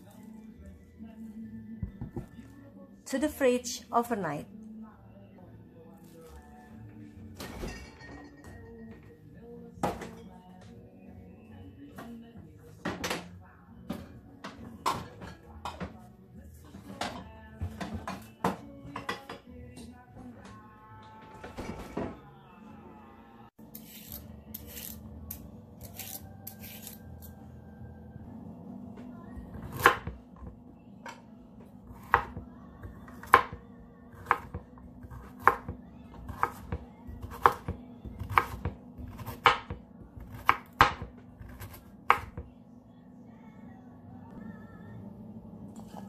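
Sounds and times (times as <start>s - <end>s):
carrot peeler scraping: 23.7s - 27.2s
knife chopping on cutting board: 35.2s - 42.4s.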